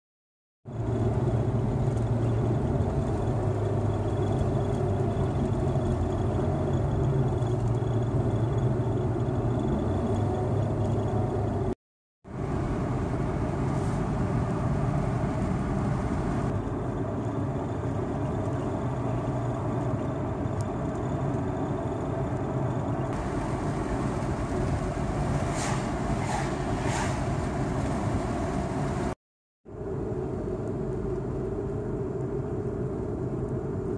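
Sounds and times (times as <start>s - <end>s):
car road and engine noise: 0.6s - 33.9s.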